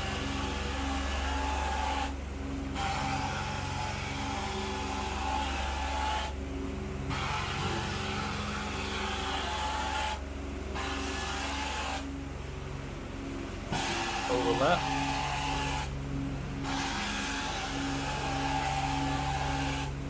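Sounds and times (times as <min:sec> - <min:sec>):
extraction machine droning: 0:00.0 - 0:20.0
extraction wand spraying and sucking: 0:07.1 - 0:10.2, 0:13.7 - 0:15.9, 0:16.6 - 0:20.0.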